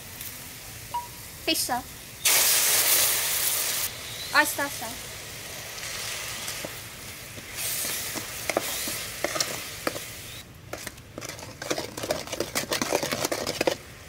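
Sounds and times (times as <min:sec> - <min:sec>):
sauce sizzling in hot oil: 0:00.0 - 0:10.4.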